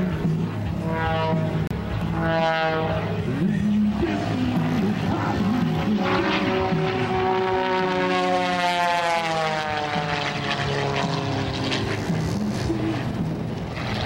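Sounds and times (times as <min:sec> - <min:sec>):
propeller plane engine droning: 0:00.0 - 0:14.0.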